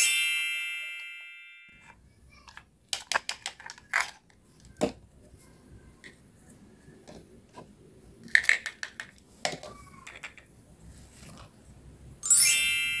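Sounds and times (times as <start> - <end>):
plastic toys clicking and knocking: 1.8 - 11.6.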